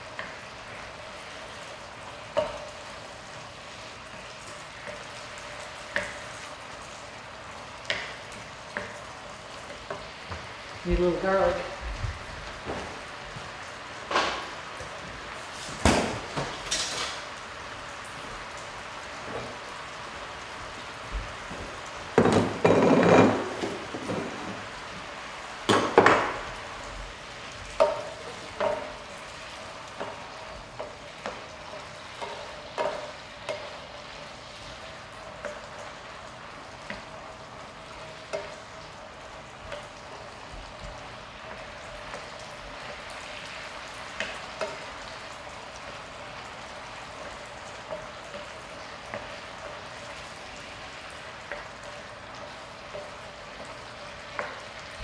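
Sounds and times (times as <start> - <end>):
chicken sizzling in grease: 0.0 - 55.0
spoon stirring and knocking pan: 2.2 - 3.0, 22.1 - 24.6, 25.7 - 26.4, 27.7 - 34.0
kitchenware clattering: 22.2 - 24.6.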